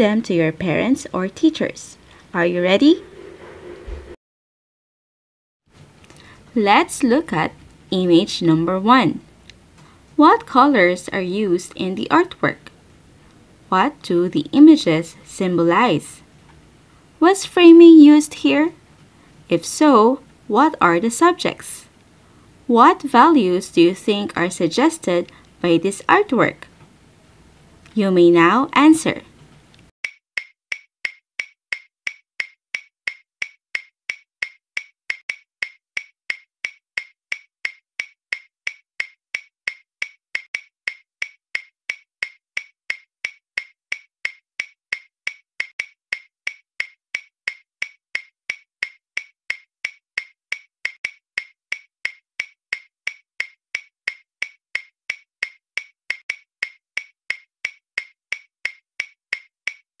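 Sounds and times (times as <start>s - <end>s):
clock ticking: 30.0s - 59.8s.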